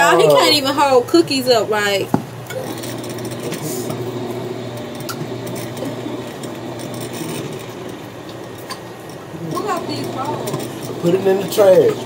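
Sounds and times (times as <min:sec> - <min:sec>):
electric can opener humming: 0:00.0 - 0:12.0.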